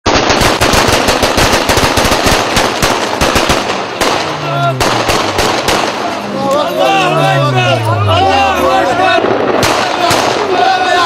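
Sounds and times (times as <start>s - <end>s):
rifle gunfire bursts: 0.1s - 6.2s, 9.2s - 11.0s
men shouting: 4.3s - 5.0s, 5.9s - 11.0s.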